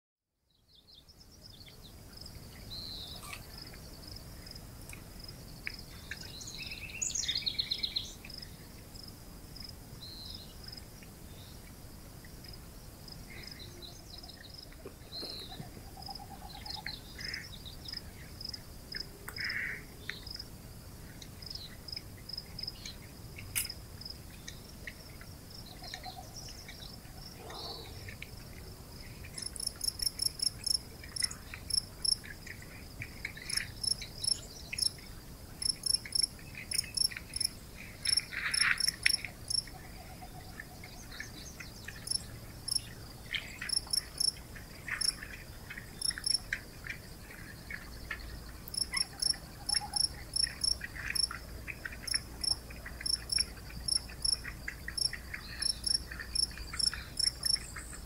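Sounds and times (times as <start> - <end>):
crickets chirping: 1.2 - 58.0
birds calling: 13.4 - 17.5.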